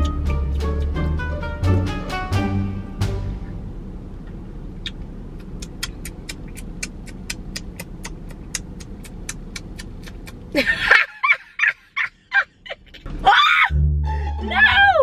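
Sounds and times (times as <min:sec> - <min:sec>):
steady low hum: 0:00.0 - 0:15.0
rapid even ticking: 0:04.9 - 0:10.5.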